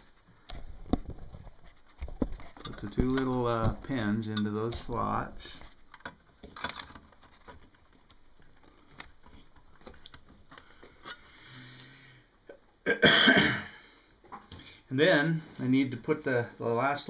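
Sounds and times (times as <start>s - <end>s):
faint clicks and taps: 0.4s - 11.2s
man coughing: 12.8s - 13.8s.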